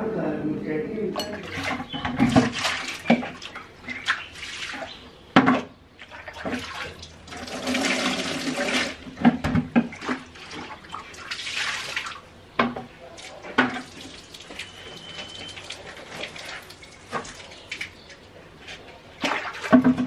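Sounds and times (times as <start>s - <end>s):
water running from a tap: 6.6s - 9.0s.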